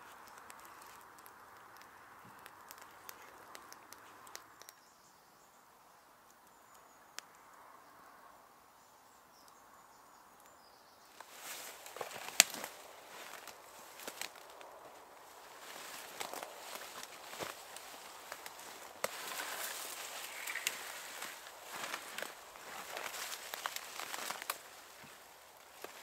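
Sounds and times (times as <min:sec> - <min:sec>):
campfire crackling: 0:00.0 - 0:07.6, 0:10.2 - 0:26.0
footsteps crunching through leaves: 0:11.2 - 0:26.0.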